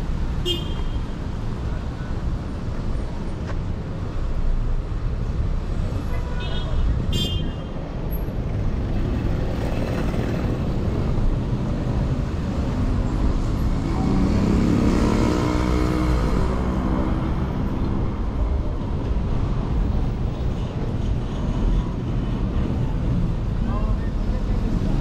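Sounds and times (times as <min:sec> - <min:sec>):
road noise rumble: 0:00.0 - 0:25.0
vehicle engine passing: 0:13.4 - 0:18.3.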